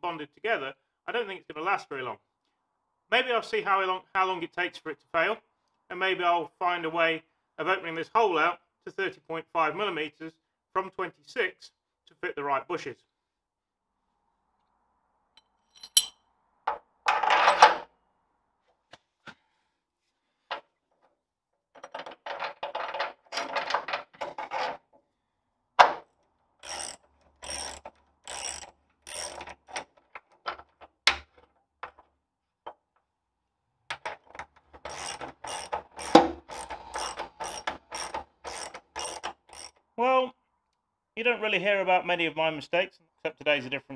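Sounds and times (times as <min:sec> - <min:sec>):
metal parts clanking: 0:21.8 - 0:24.8, 0:26.6 - 0:30.8, 0:34.2 - 0:39.8
ratchet wrench clicking: 0:26.6 - 0:29.8, 0:34.8 - 0:39.8.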